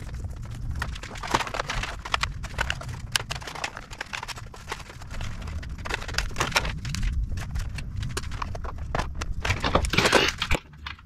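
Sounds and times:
clicking and clattering of parts: 0:00.0 - 0:11.0
low steady rumble: 0:00.0 - 0:11.0.

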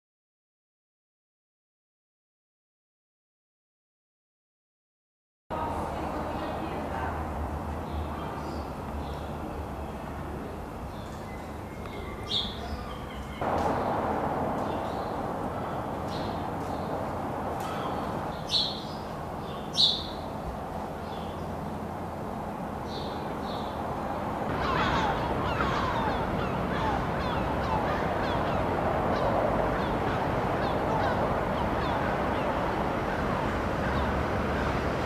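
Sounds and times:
steady background rumble: 0:05.5 - 0:35.0
birds chirping: 0:07.7 - 0:35.0
chatter of short falling bird calls: 0:24.5 - 0:28.6.

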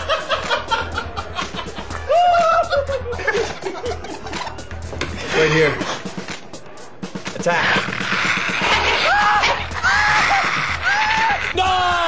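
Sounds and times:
shrill screeching cries: 0:08.0 - 0:12.0.

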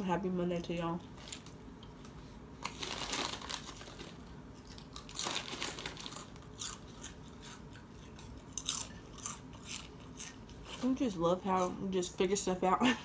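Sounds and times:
crunching and chewing snack: 0:01.2 - 0:11.0.

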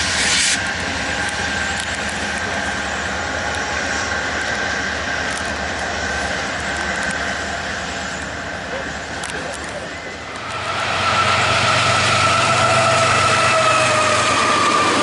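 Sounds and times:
diesel locomotives running loudly: 0:00.0 - 0:15.0
steady high whine: 0:00.0 - 0:15.0.

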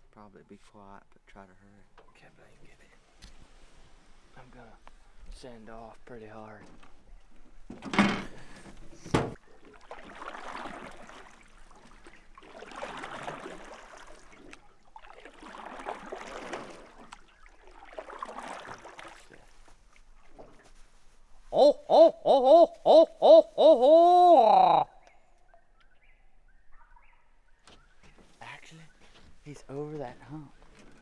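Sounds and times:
paddle swishing through water: 0:08.3 - 0:21.6
loud hooting call: 0:21.5 - 0:24.9.

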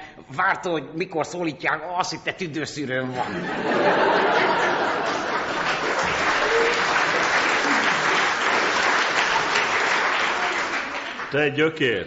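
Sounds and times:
audience applauding: 0:03.8 - 0:11.6.

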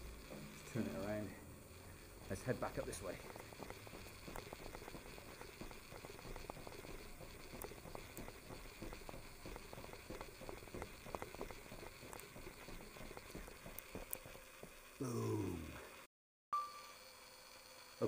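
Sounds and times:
footsteps on concrete floor: 0:02.4 - 0:14.8.

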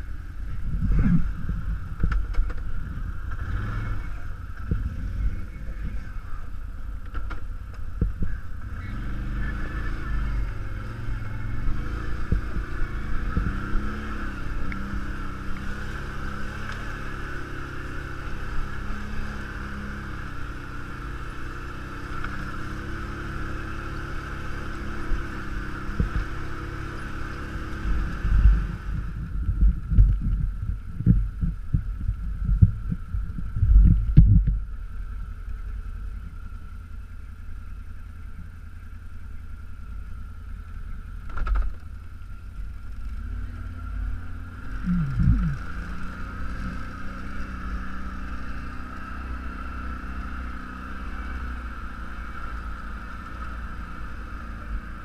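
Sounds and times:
quad bike engine revving: 0:00.0 - 0:06.5, 0:08.1 - 0:29.3, 0:42.8 - 0:55.0
steady low hum: 0:23.0 - 0:50.7
heavy low thumps: 0:28.4 - 0:34.7, 0:44.8 - 0:45.8.

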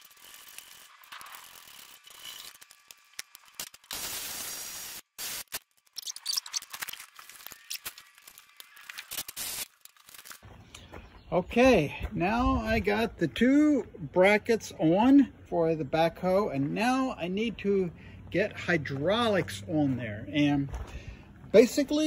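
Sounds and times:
burst of noise: 0:03.6 - 0:06.6.

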